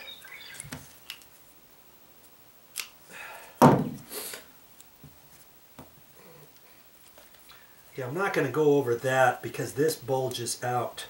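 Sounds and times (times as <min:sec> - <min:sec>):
sharp knock: 0:03.6 - 0:04.0
short scraping hiss: 0:04.0 - 0:04.5.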